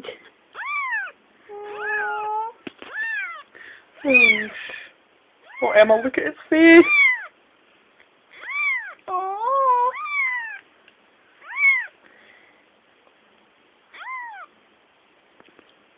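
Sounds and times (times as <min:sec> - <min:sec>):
kitten meowing: 0:00.6 - 0:04.5, 0:06.8 - 0:07.3, 0:08.4 - 0:10.6, 0:11.4 - 0:12.0, 0:13.9 - 0:14.5.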